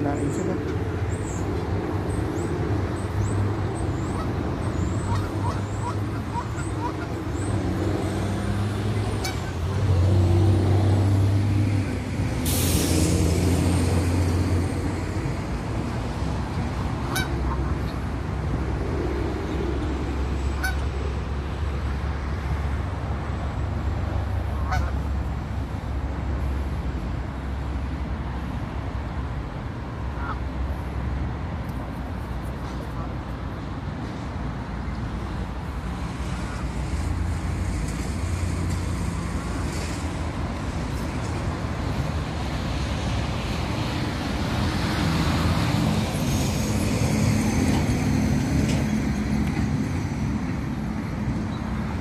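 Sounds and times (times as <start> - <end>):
low rumble of road traffic: 0.0 - 52.0
short sharp hiss: 12.4 - 13.4.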